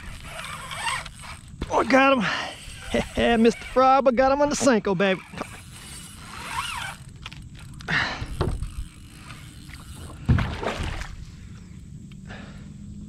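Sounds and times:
rustling splashy handling: 9.2 - 11.2.

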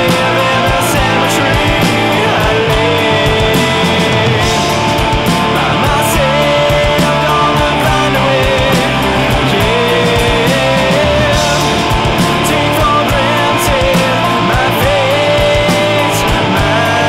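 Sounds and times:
electric guitar lead line: 0.0 - 17.0
loud rock music: 0.0 - 17.0.

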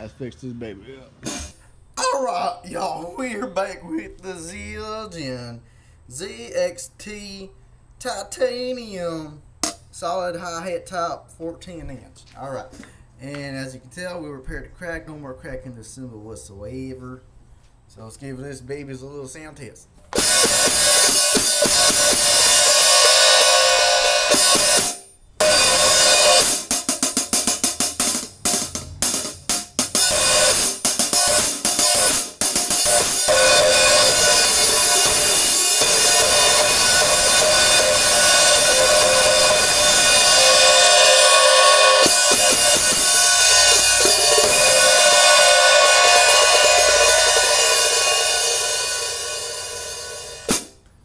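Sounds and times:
hi-hats played: 1.2 - 1.7, 20.2 - 50.8.

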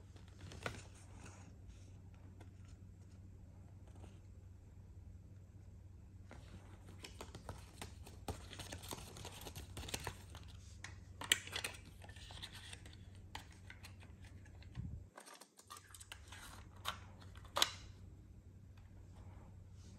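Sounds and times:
paper rustling: 6.3 - 17.7.

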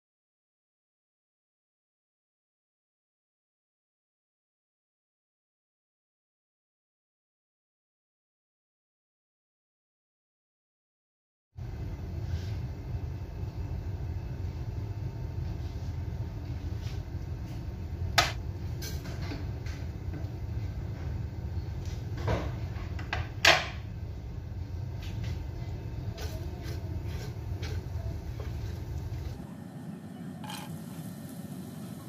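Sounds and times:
induction cooktop humming: 11.6 - 32.0
spatula stirring in a pan: 24.8 - 29.4.

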